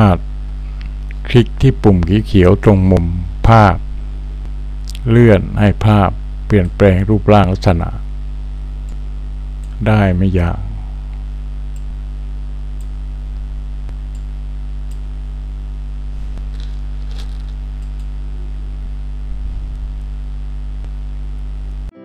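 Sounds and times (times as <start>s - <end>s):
electrical mains hum: 0.0s - 21.9s
faint clicks: 13.8s - 15.1s, 17.8s - 18.1s.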